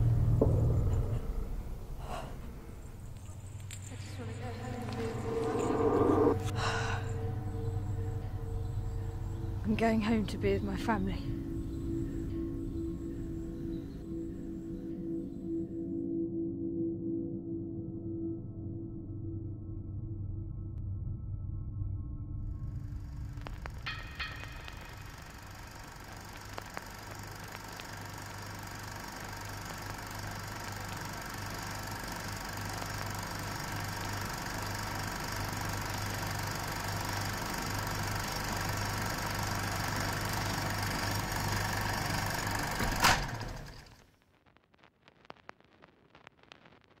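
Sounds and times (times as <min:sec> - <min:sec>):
droning rumble with low hum: 0:00.0 - 0:15.6, 0:19.1 - 0:45.5
faint scattered crackles: 0:22.9 - 0:37.4, 0:43.4 - 0:47.0.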